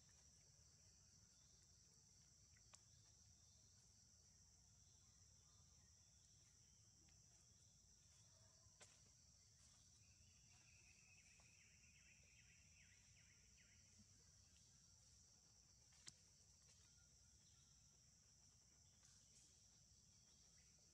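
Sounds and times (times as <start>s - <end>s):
faint high-pitched insect drone: 0.0s - 20.9s
faint chirps: 7.3s - 15.2s.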